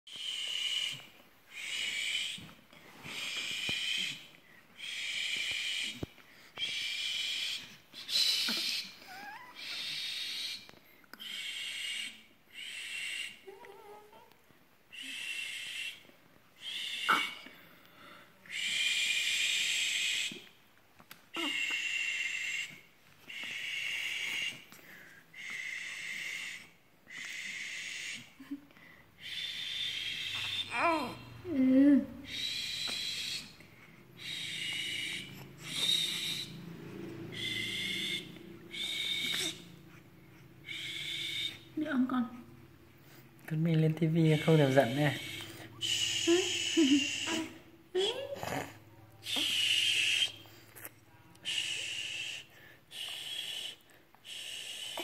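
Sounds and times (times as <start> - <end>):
person making hissing sounds: 0.1 - 13.5, 14.9 - 20.5, 21.3 - 31.3, 32.2 - 33.6, 34.2 - 36.5, 44.4 - 55.0
person's breathy hiss: 51.4 - 55.0.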